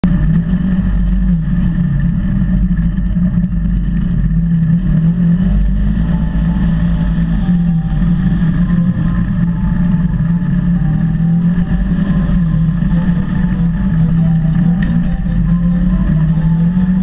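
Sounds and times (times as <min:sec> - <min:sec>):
engine running with low rumble: 0:00.0 - 0:17.0.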